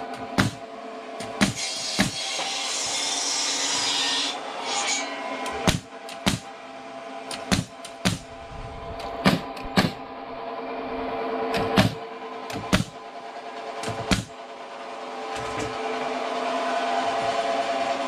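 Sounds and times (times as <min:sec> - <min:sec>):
pneumatic nailer firing: 0:00.1 - 0:00.6, 0:01.2 - 0:03.0, 0:05.4 - 0:06.5, 0:07.3 - 0:08.3, 0:09.0 - 0:10.0, 0:11.5 - 0:13.0, 0:13.8 - 0:14.4.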